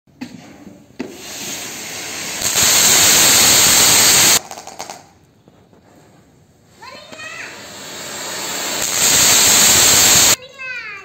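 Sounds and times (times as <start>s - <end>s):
fountain firework hissing: 1.0s - 4.8s, 7.2s - 10.4s.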